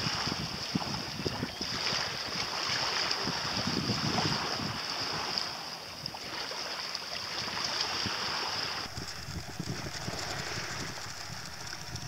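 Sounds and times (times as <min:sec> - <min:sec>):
wind buffeting microphone: 0:00.0 - 0:05.3, 0:07.4 - 0:12.0
sea washing on rocks: 0:00.0 - 0:12.0
constant high hiss: 0:08.6 - 0:12.0.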